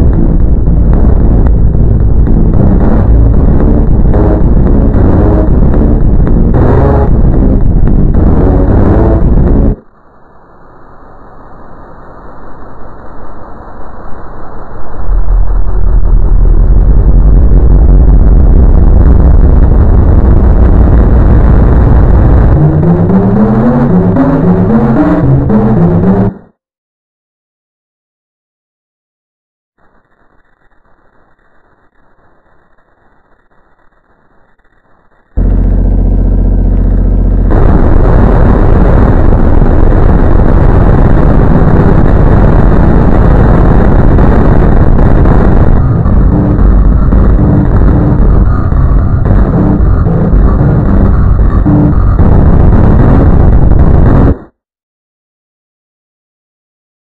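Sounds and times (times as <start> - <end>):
loud distorted low rumble: 0.0 - 10.5, 14.6 - 26.5, 35.4 - 54.5
held pitched tone: 22.4 - 26.4, 43.2 - 53.0
melody of short stepped notes: 22.5 - 26.3.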